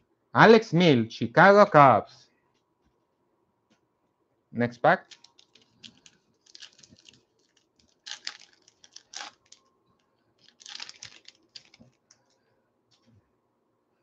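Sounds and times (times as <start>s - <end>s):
cards rustling: 5.0s - 9.6s, 10.4s - 12.2s
foil wrapper crinkling and tearing: 5.0s - 9.6s, 10.4s - 12.2s.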